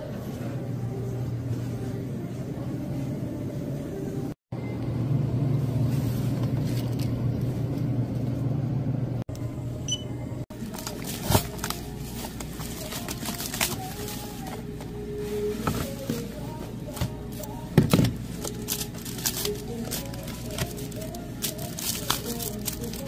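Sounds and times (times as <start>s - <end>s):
plastic film crinkling: 10.5s - 16.5s, 18.2s - 23.0s.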